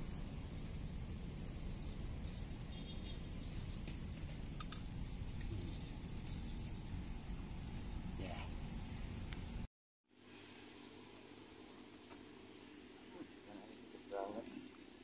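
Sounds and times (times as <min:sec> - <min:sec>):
steady low rumble: 0:00.0 - 0:09.7.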